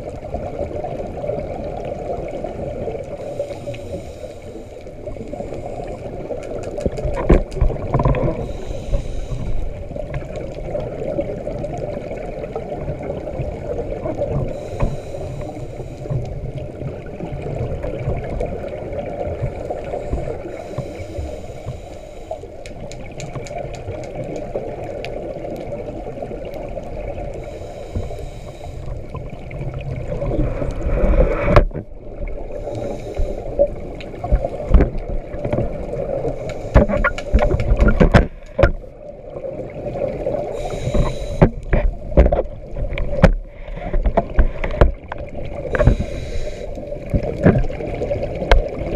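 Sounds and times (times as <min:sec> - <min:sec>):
regulator inhalation hiss: 0:03.2 - 0:06.0, 0:08.4 - 0:09.7, 0:14.5 - 0:16.2, 0:19.9 - 0:22.6, 0:27.4 - 0:29.0, 0:32.5 - 0:33.6, 0:40.5 - 0:41.7, 0:45.8 - 0:46.8.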